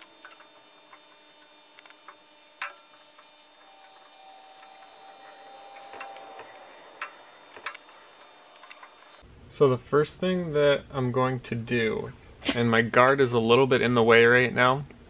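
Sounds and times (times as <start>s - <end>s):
rag rubbing on metal: 0.0s - 9.1s.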